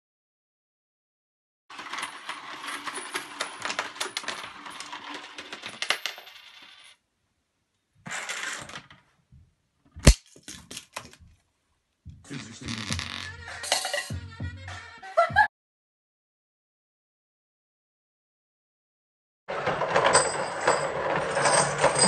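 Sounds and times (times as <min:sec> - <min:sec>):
coins jingling into funnel: 0:12.7 - 0:14.1, 0:20.0 - 0:22.0.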